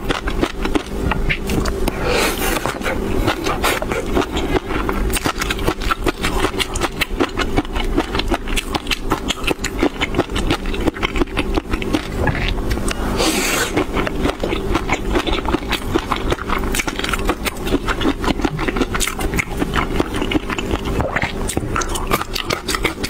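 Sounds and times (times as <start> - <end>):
chewing fish roe: 0.0 - 23.0.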